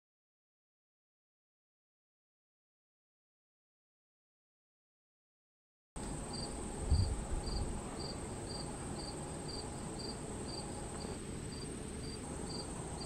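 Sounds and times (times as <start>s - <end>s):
insect high buzz: 6.0s - 13.0s
insect pulsed chirp: 6.0s - 13.0s.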